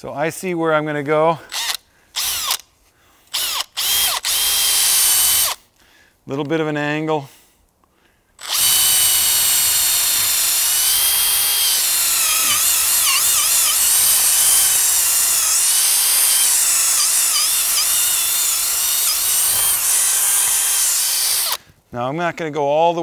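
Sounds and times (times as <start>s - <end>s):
cordless drill whining: 1.4s - 2.7s, 3.3s - 5.6s, 8.4s - 21.7s.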